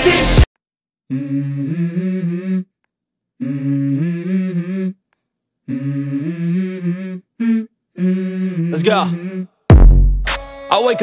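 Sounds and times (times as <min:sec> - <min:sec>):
wordless vocal melody: 0:00.0 - 0:00.4, 0:01.1 - 0:02.8, 0:03.4 - 0:09.7.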